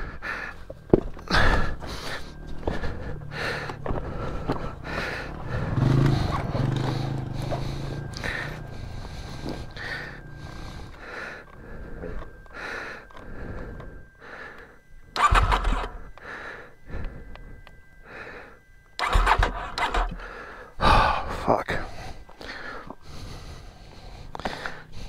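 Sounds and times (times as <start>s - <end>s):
heavy rhythmic panting: 0.0s - 25.0s
motorcycle engine cranking: 1.0s - 11.0s, 15.2s - 16.0s, 19.0s - 20.3s.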